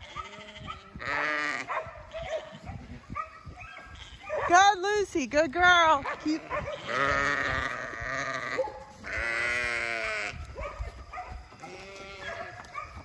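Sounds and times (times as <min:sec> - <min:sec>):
sheep bleating: 0:00.0 - 0:02.6, 0:03.9 - 0:04.3, 0:05.8 - 0:10.6, 0:11.4 - 0:12.7.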